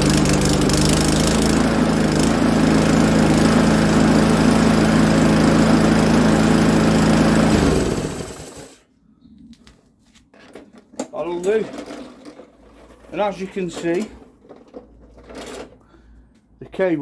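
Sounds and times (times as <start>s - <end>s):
lawnmower engine running: 0.0s - 8.8s.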